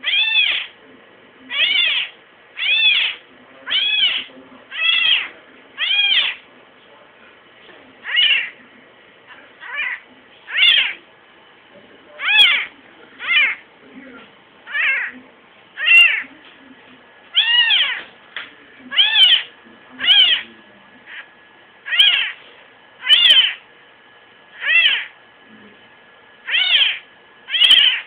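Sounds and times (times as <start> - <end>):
kitten meowing: 0.0 - 0.7, 1.5 - 6.4, 8.0 - 8.6, 9.6 - 11.0, 12.2 - 13.6, 14.7 - 15.2, 15.8 - 16.2, 17.3 - 18.0, 18.9 - 20.4, 21.9 - 22.4, 23.0 - 23.6, 24.6 - 25.1, 26.4 - 28.0.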